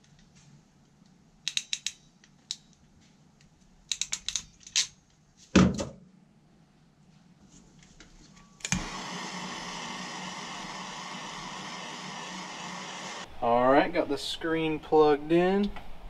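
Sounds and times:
ratcheting wire crimper clicking: 1.4 - 2.8, 3.4 - 4.9
butane torch clicking alight: 8.6 - 13.2
torch flame hissing: 8.7 - 13.3.

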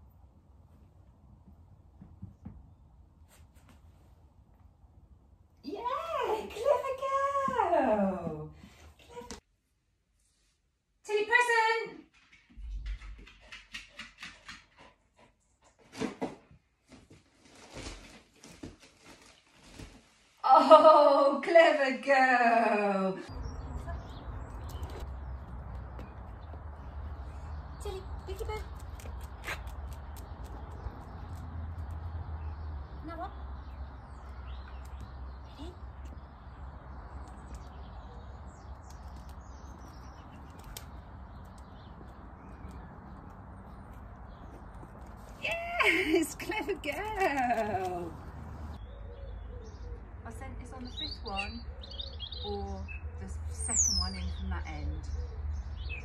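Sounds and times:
small birds chirping: 23.3 - 56.0.

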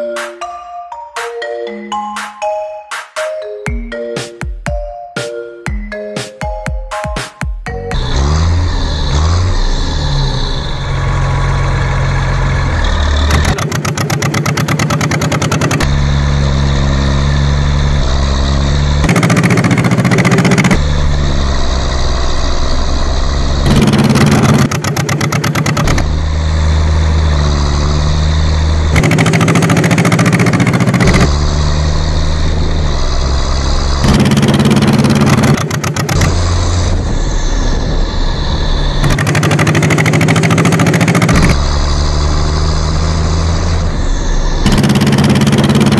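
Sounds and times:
tractor engine chugging: 10.2 - 37.8, 38.8 - 42.0, 43.9 - 45.9.

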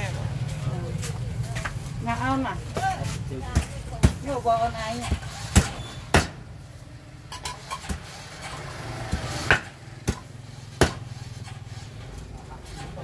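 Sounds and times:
cleaver chopping on wooden board: 5.1 - 6.4, 9.0 - 11.1.

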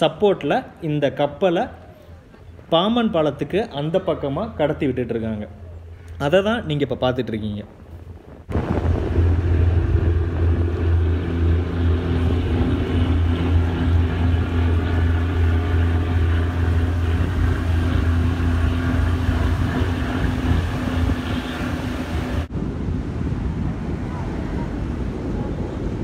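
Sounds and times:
boat engine running: 1.2 - 6.8, 7.8 - 22.5.

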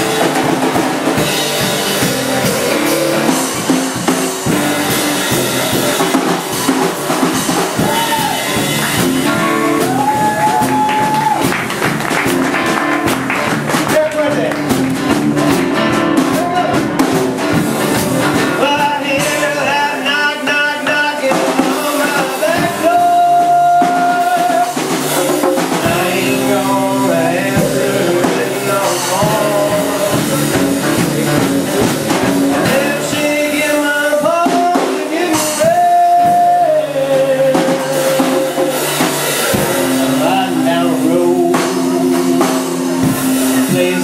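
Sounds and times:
acoustic guitar: 0.0 - 44.0
drum kit: 0.0 - 44.0
man singing: 7.6 - 11.4, 17.9 - 44.0.

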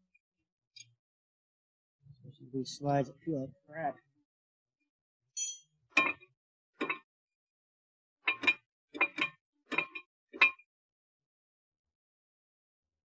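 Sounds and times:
metallic clinks of tools: 5.4 - 5.7.

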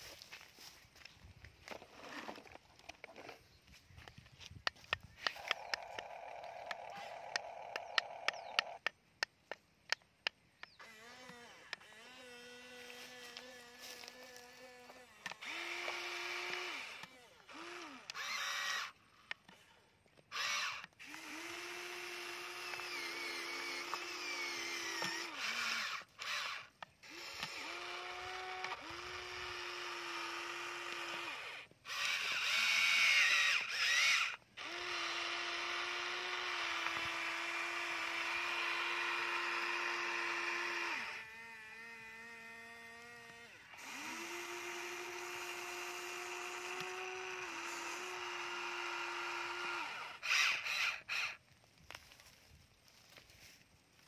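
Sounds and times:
toy excavator motors whirring: 1.0 - 53.3.

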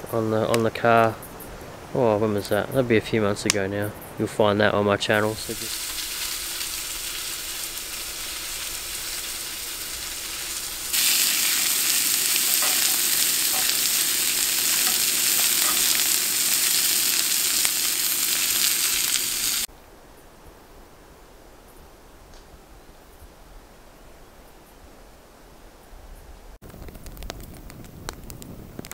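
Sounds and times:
quiet outdoor ambience: 0.0 - 28.9
sausages sizzling in frying pans: 5.3 - 19.7
tongs clicking: 12.3 - 16.8.

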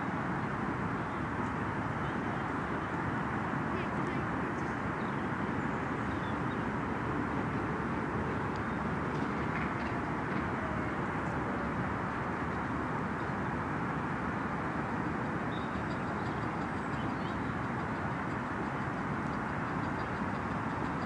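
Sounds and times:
faint light ticks: 8.5 - 10.5.

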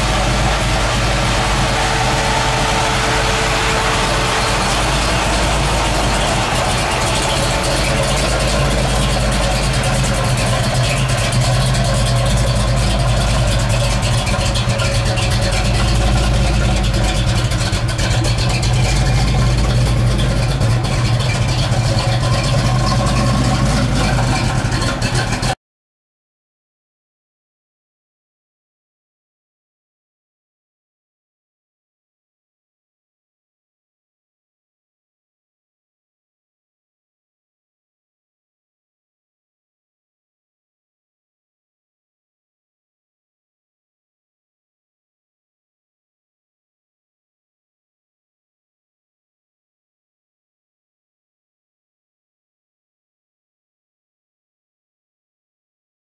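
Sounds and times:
car engine idling: 0.0 - 25.6.

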